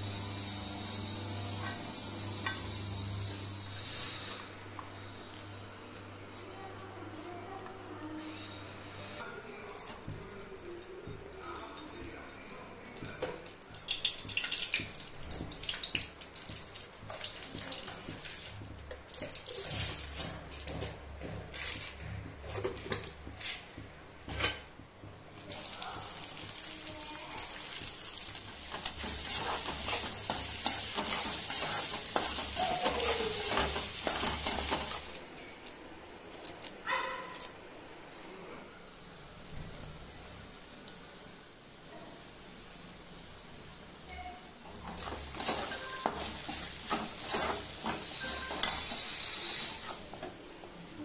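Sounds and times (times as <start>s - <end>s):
hot oil crackling and spitting: 9.5s - 36.8s, 44.6s - 51.0s
onions sizzling in oil: 25.1s - 35.2s, 42.6s - 50.9s.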